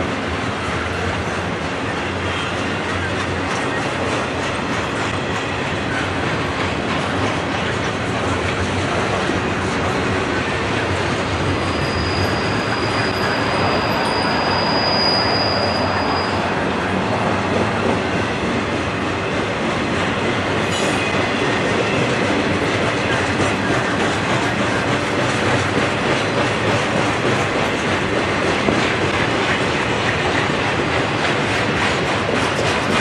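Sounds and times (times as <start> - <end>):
train cars rumbling: 0.0 - 33.0
wheel clatter over rail joints: 19.3 - 33.0.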